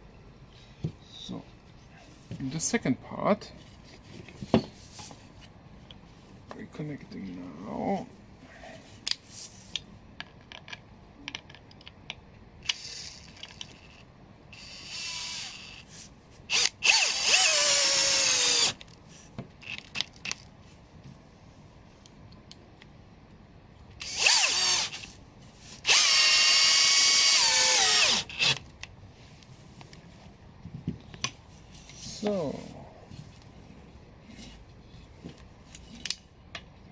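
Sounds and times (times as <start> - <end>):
cordless drill driving screws: 14.6 - 15.9, 16.5 - 18.8, 24.0 - 25.1, 25.8 - 28.6.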